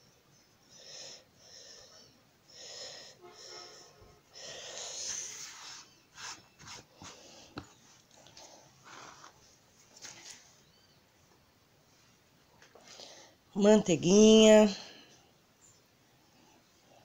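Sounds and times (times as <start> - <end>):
person breathing close: 0.6 - 5.9.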